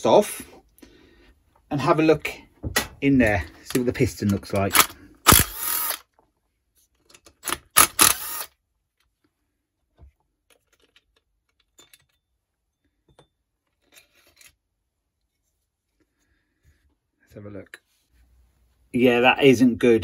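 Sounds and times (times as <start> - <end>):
metal parts clattering and scraping: 10.5 - 12.4, 13.0 - 14.6.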